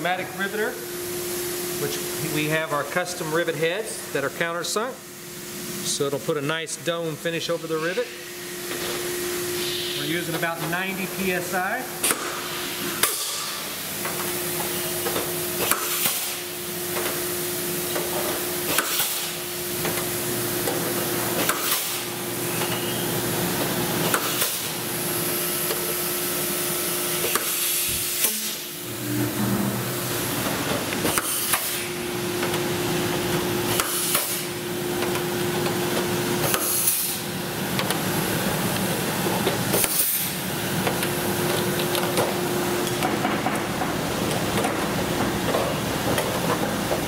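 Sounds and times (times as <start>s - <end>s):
air hiss: 9.5s - 10.3s.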